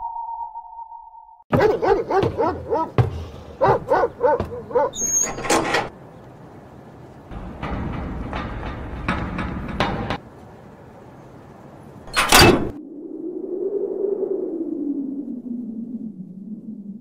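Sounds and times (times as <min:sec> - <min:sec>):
dog barking: 0:01.5 - 0:05.0
brief high squeak: 0:05.0 - 0:05.6
sharp knocks: 0:07.3 - 0:10.2.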